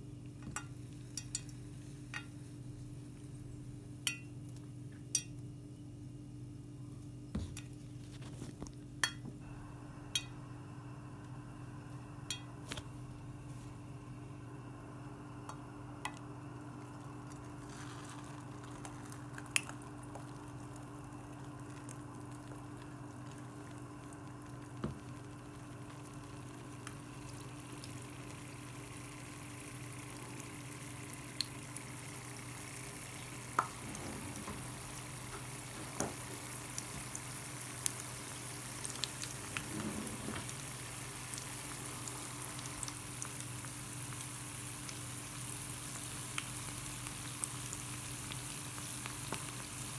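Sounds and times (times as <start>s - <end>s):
steady low hum: 0.0s - 49.9s
batter sizzling in hot oil: 0.4s - 3.5s, 15.4s - 49.9s
oil popping: 16.1s - 30.5s.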